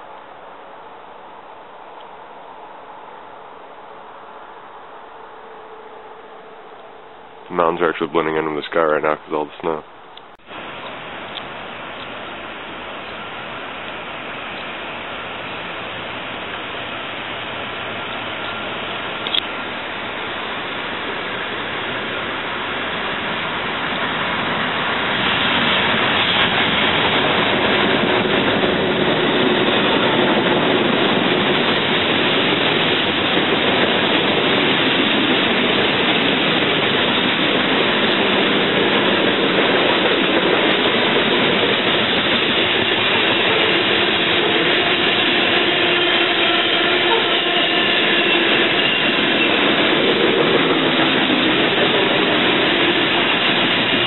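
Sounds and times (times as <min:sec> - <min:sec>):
faint whine: 0:00.0 - 0:24.1
freight train wheels rumbling on rail: 0:02.9 - 0:54.0.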